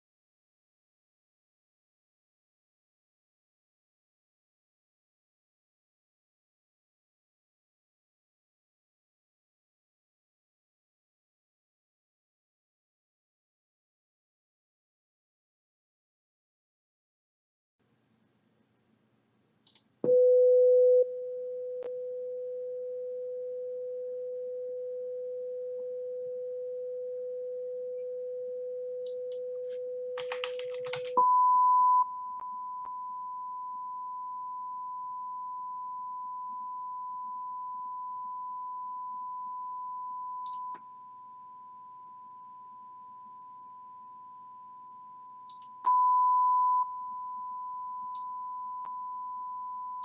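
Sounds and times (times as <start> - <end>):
sine test tone: 20.0 - 30.2, 31.1 - 50.0
keyboard typing: 30.2 - 31.2.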